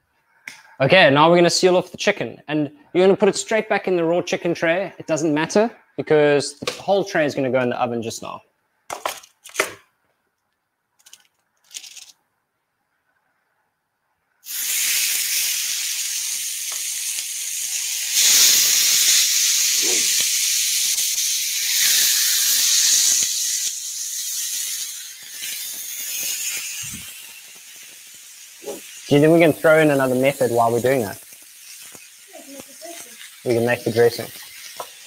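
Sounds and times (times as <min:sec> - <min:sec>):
chicken sizzling on griddle pan: 0:14.4 - 0:35.0.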